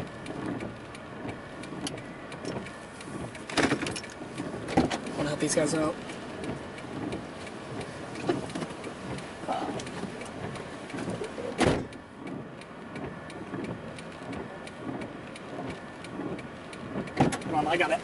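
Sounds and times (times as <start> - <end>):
sharp thump: 11.6 - 11.9.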